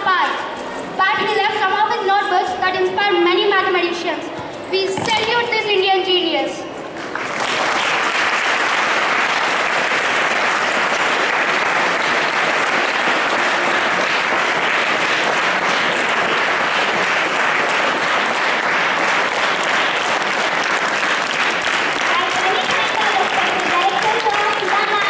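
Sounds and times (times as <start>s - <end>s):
children applauding: 7.0s - 25.0s.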